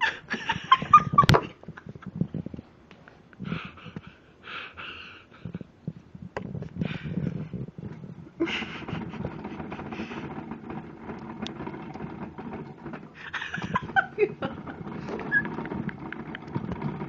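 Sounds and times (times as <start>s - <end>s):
exercise wheel spinning: 0.0s - 2.7s, 5.4s - 17.0s
wheel clicks and knocks: 7.8s - 17.0s.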